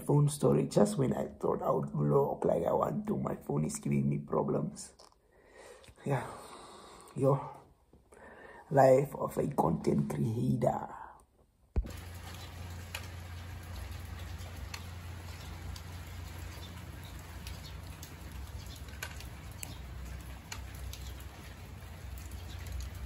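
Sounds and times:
faint ticks: 12.2 - 23.0.

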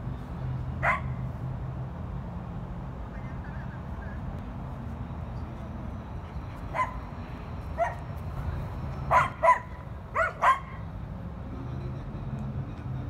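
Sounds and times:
dog barking: 0.8 - 1.2, 6.7 - 7.0, 7.8 - 8.0, 9.1 - 10.8.

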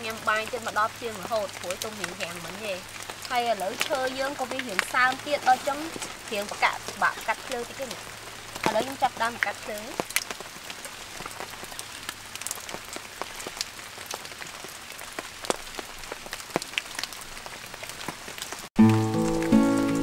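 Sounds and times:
dry leaves and twigs crackling: 0.0 - 17.4
music: 18.8 - 20.0.

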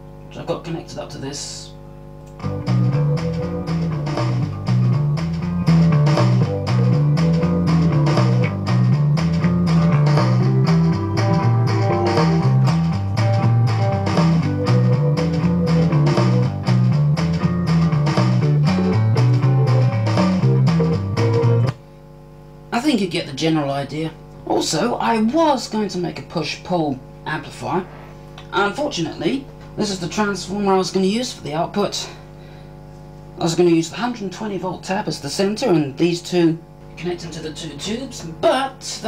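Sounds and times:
rock music from loudspeaker: 2.4 - 21.8.

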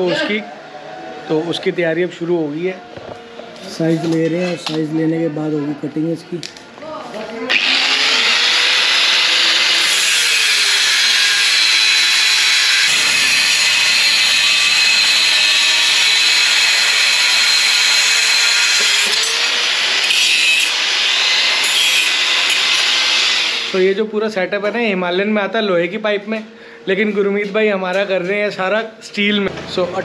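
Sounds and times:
power tool grinding metal: 7.5 - 23.8.

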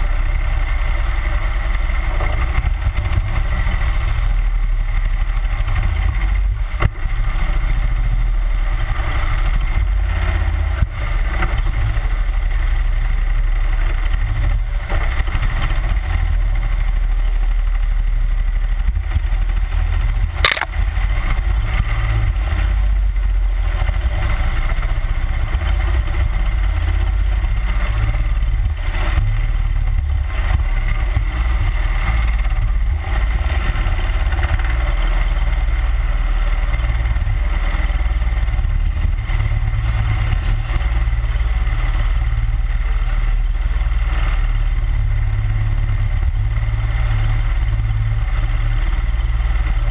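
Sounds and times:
boat motor droning: 0.0 - 49.9
sharp knocks: 20.4 - 20.7.

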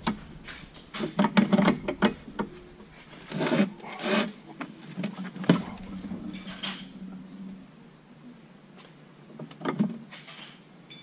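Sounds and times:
metal scraping and rubbing: 0.0 - 7.8.

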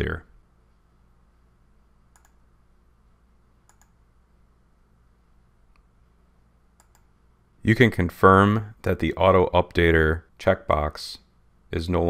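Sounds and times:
faint low hum: 0.0 - 12.0
computer mouse clicks: 2.1 - 2.4, 3.6 - 4.0, 6.8 - 7.1.

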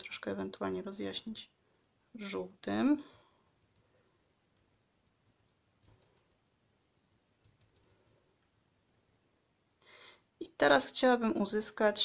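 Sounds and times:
fingertips dabbing paint on paper: 1.8 - 9.4.

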